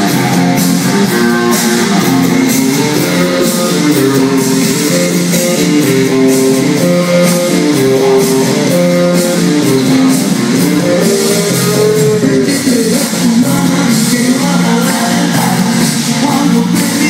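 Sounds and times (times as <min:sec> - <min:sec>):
dance music with plucked guitar: 0:00.0 - 0:17.0.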